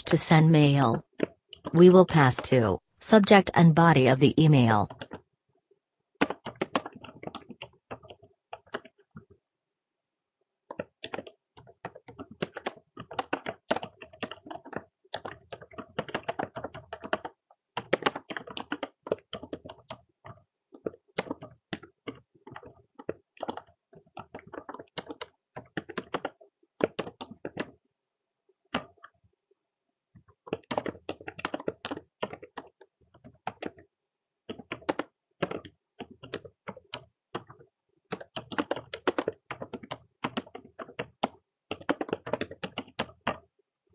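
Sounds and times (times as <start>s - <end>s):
typing on computer keyboard: 4.9s - 5.3s, 6.2s - 9.4s, 10.6s - 27.9s, 28.6s - 29.2s, 30.2s - 43.9s.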